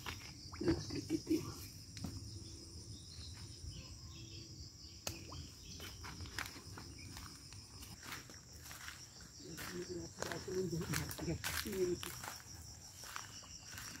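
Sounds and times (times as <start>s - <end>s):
insects buzzing: 0.0s - 14.0s.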